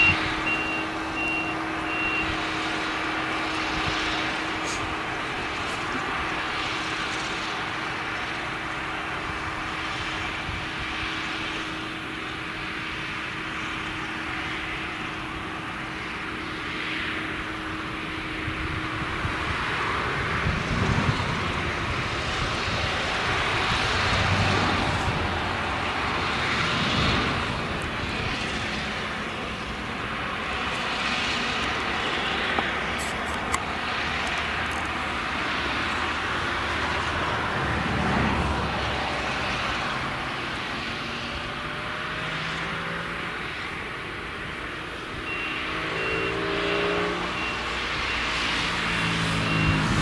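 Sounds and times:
tractor engine: 0:00.0 - 0:50.0.

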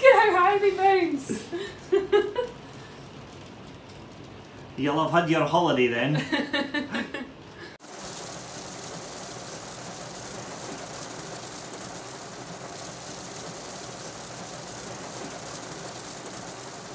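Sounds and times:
heavy rain on car roof: 0:07.8 - 0:16.9.

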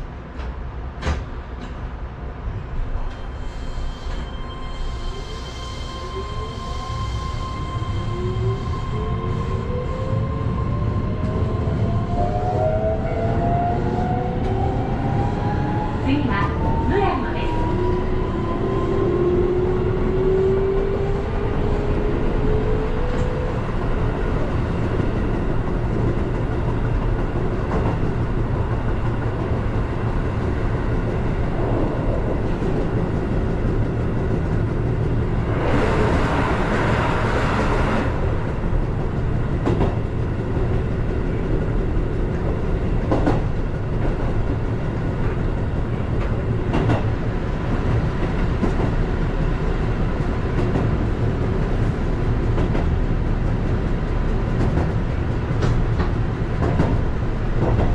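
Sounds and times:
passing train rushing: 0:00.0 - 0:57.9
train running noise: 0:00.0 - 0:57.9.

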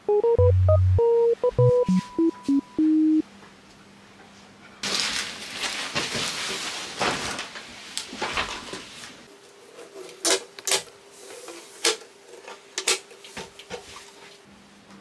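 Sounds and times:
electronic beeps: 0:00.1 - 0:03.2
cardboard packaging rustling and scraping: 0:04.8 - 0:10.2.

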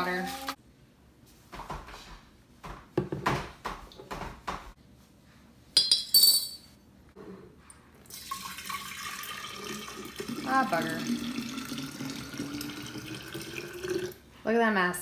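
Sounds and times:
tea pouring into glass carafe: 0:08.1 - 0:14.2.

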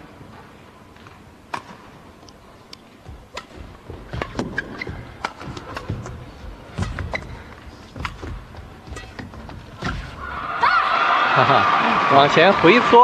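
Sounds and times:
racket hitting shuttlecock: 0:03.3 - 0:10.2
shoe squeaks: 0:04.3 - 0:05.8, 0:06.8 - 0:07.5.

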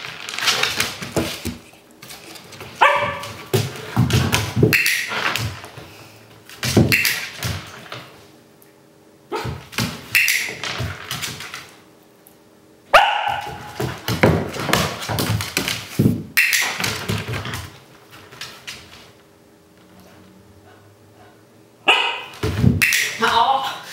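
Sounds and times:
dog barking: 0:02.8 - 0:03.3, 0:12.9 - 0:13.7, 0:21.8 - 0:22.4.

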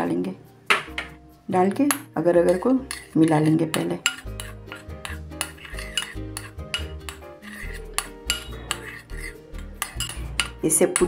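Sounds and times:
background music: 0:00.0 - 0:11.0
spoon clinking in ceramic bowl: 0:01.8 - 0:11.0.

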